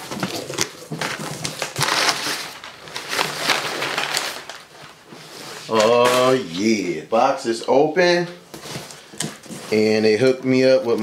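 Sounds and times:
packing paper crinkling: 0.0s - 6.7s.

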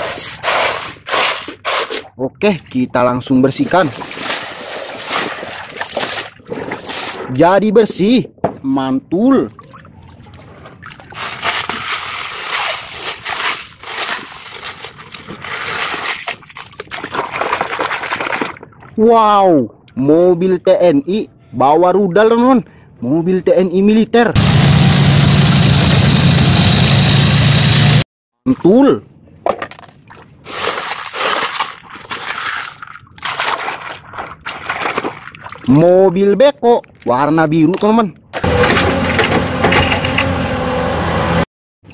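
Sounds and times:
wet gravel scraping on plastic: 0.0s - 2.1s, 3.7s - 7.4s, 11.0s - 18.6s, 30.4s - 35.1s
water sloshing: 0.0s - 7.4s, 9.4s - 19.0s, 29.6s - 35.8s.

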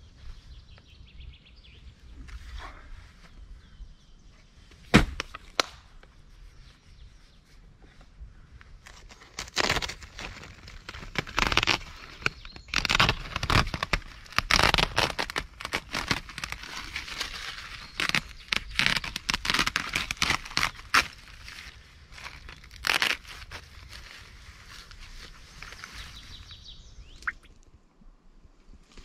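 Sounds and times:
plastic sheeting crinkling: 8.9s - 26.2s.

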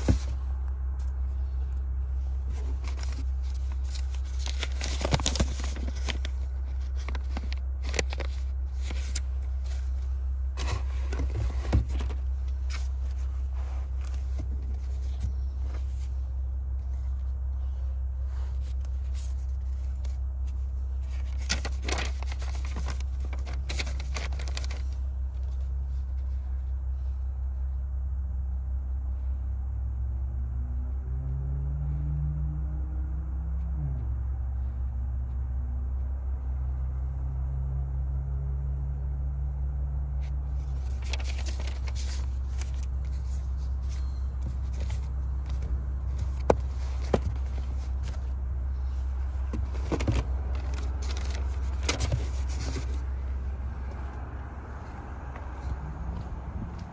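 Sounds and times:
paper rustling and crackling: 0.0s - 0.4s, 2.4s - 16.1s, 18.3s - 26.5s, 40.6s - 53.4s
steady low hum: 0.0s - 56.9s.

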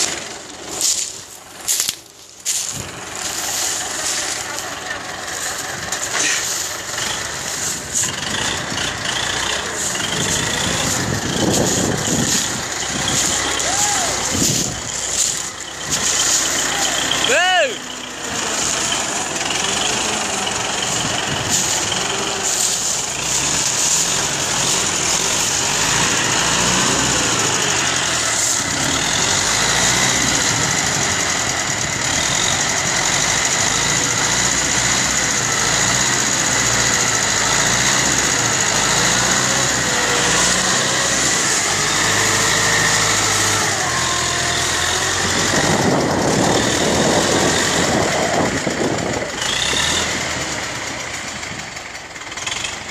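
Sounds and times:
rough rush of noise: 0.0s - 31.4s
tractor diesel engine under load: 0.0s - 52.9s.

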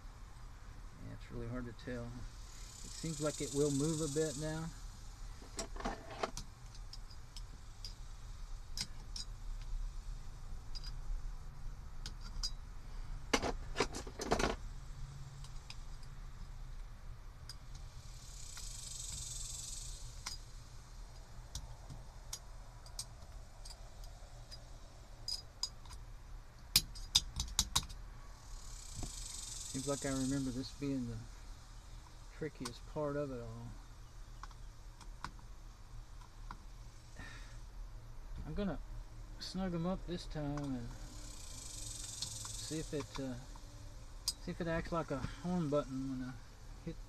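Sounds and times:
small metallic rattles: 2.4s - 9.8s, 10.6s - 11.2s, 12.0s - 16.6s, 17.4s - 33.6s, 40.5s - 46.4s.

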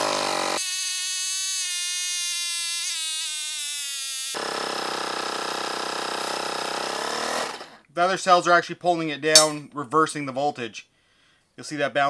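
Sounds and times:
air compressor motor running: 4.4s - 7.8s.

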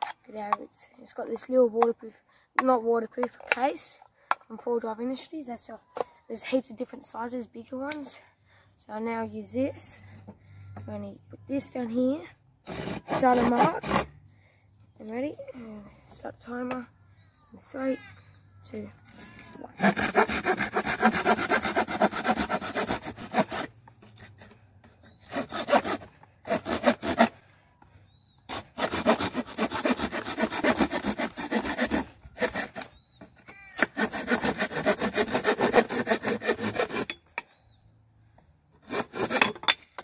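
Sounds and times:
folding saw cutting wood: 12.6s - 14.1s, 19.0s - 27.4s, 28.5s - 37.3s, 38.8s - 39.7s.

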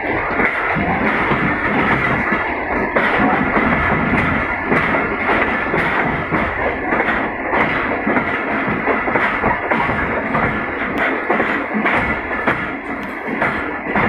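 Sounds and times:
train wheels clattering: 0.0s - 14.0s
wheels knocking over rail joints: 0.3s - 14.0s.

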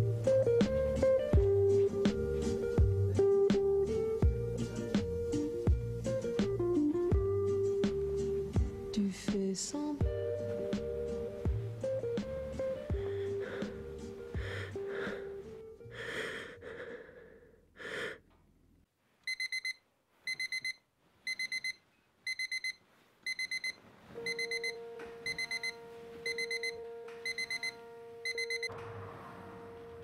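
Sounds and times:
alarm clock beeping: 19.3s - 28.7s.

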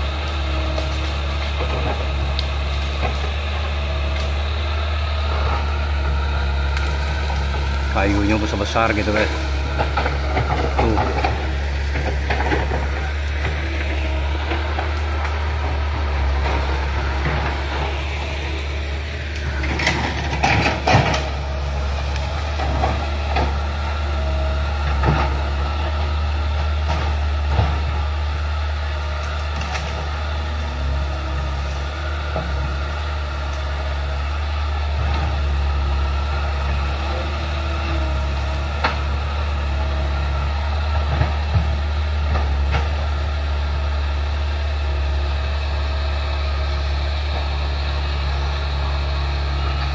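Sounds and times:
excavator diesel engine humming: 0.0s - 49.9s
sharp cracks and knocks: 19.3s - 23.7s.

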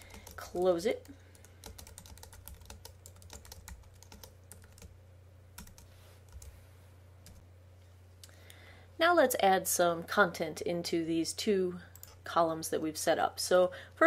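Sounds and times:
keyboard typing: 0.0s - 4.9s, 5.6s - 6.5s.

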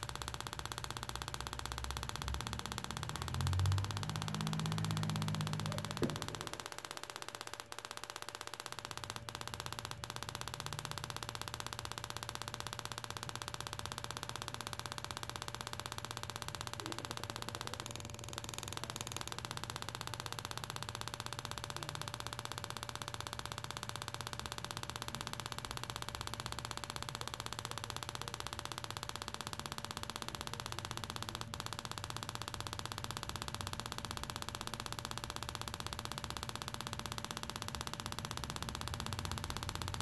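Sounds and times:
sharp click: 0.0s - 13.2s
buzzing crackle of sparks: 0.0s - 40.0s.

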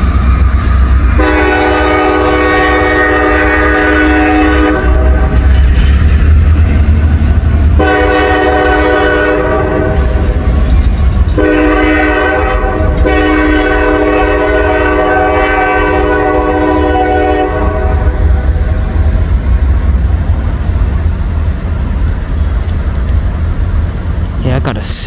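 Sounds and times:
steady low rumble: 0.0s - 25.0s
locomotive air horn blasts: 1.2s - 5.4s, 7.8s - 10.2s, 11.4s - 18.4s.

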